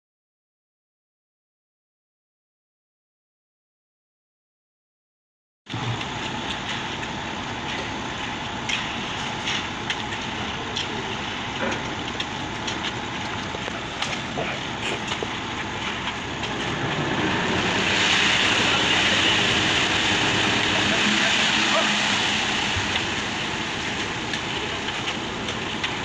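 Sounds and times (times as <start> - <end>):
concrete mixer truck running: 5.7 - 26.0.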